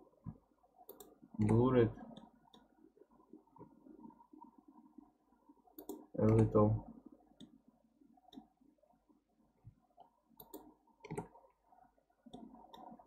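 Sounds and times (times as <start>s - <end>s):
faint computer mouse clicks: 0.9s - 2.7s, 5.8s - 6.4s, 10.0s - 11.3s.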